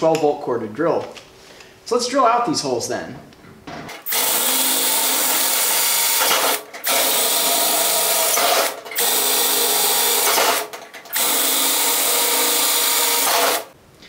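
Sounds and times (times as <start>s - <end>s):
electric drill boring sheet metal: 4.0s - 13.7s.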